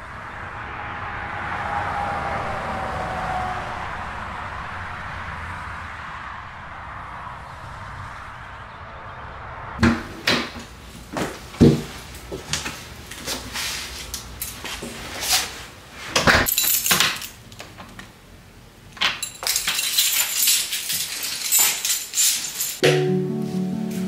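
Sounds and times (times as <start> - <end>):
keys jangling: 16.5 - 17.4, 19.2 - 22.8.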